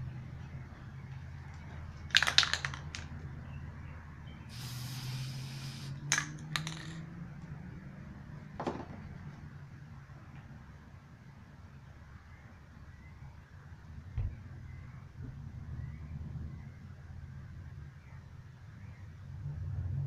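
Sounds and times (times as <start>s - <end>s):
spray can hiss: 4.5s - 6.2s
clicks and knocks of can handled: 6.1s - 7.0s.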